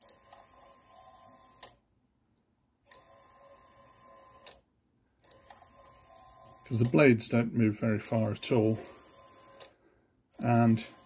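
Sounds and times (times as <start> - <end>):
small motor whirring: 0.0 - 1.8, 2.9 - 4.6, 5.2 - 7.0, 8.1 - 11.0.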